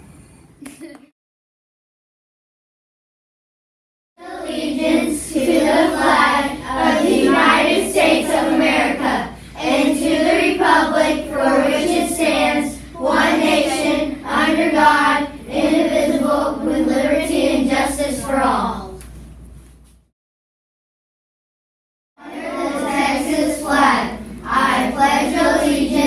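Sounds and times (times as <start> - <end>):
children's voices in unison: 4.2 - 19.0, 22.2 - 26.0.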